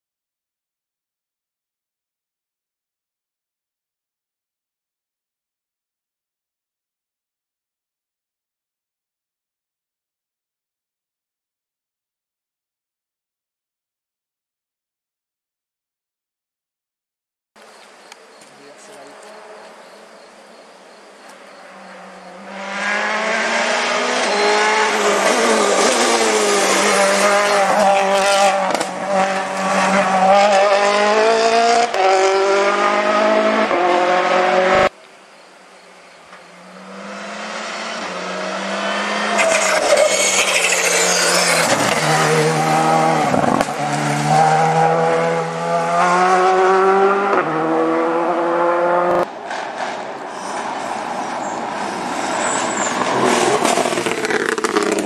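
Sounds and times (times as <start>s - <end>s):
second rally car passing: 17.8s - 34.9s, 36.3s - 55.0s
rally car engine revving: 21.4s - 34.9s, 36.4s - 55.0s.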